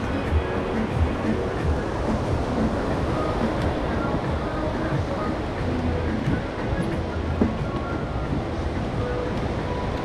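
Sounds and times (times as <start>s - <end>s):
ocean surf: 0.0s - 10.0s
wind rumble on microphone: 0.0s - 10.0s.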